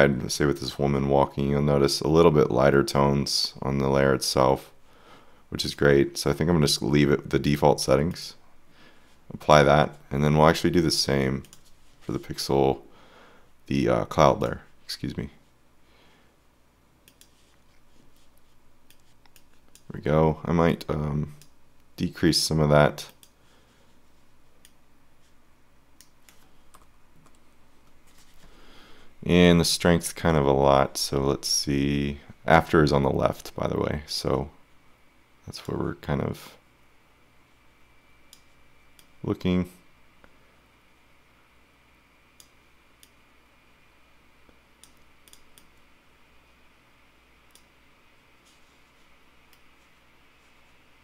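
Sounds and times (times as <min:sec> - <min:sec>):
low steady hiss: 0:00.0 - 0:51.0
room hum: 0:00.0 - 0:51.0
computer clicks: 0:17.0 - 0:17.4, 0:44.8 - 0:45.8
faint mouse clicks: 0:17.0 - 0:17.8, 0:23.0 - 0:23.4, 0:42.4 - 0:43.2, 0:44.5 - 0:45.8.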